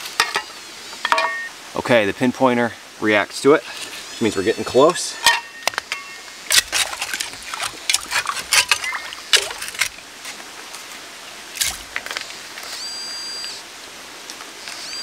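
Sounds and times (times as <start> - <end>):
digging tool scraping stones: 5.8 - 10.0.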